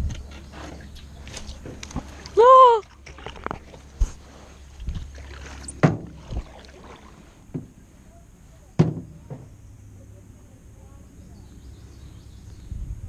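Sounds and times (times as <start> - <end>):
paddle knocking against canoe: 4.8 - 7.8, 8.8 - 9.6.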